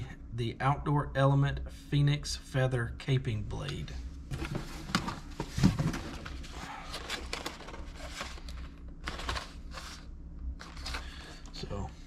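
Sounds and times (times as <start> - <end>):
packaging rustling and clicking: 4.4 - 10.0.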